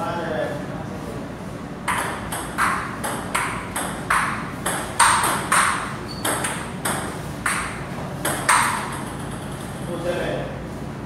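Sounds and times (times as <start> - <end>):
steady low hum: 0.0 - 11.0
table tennis ball pinging: 1.8 - 9.8.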